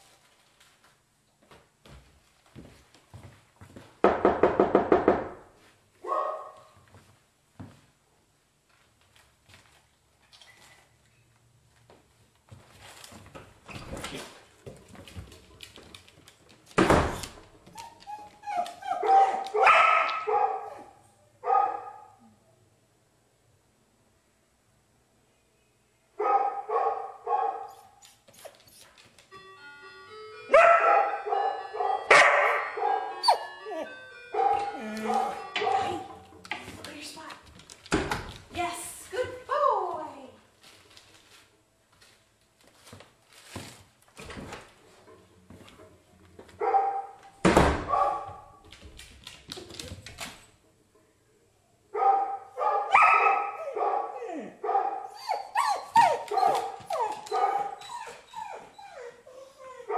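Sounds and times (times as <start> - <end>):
dog barking: 6.0 - 6.8, 19.0 - 22.2, 26.2 - 27.9, 30.6 - 33.4, 34.4 - 35.9, 46.6 - 47.2, 47.9 - 48.6, 52.0 - 55.1, 56.3 - 57.8
door thudding shut: 16.8 - 17.4, 37.9 - 38.4, 47.4 - 48.0
electronic chime melody: 29.4 - 36.2.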